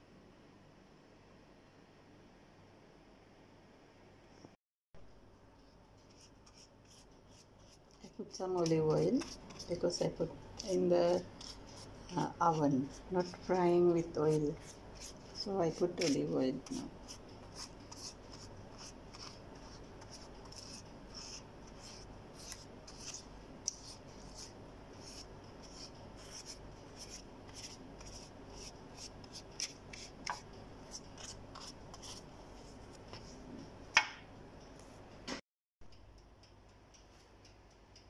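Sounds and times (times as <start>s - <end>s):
pastry brush strokes: 5.6s - 33.6s.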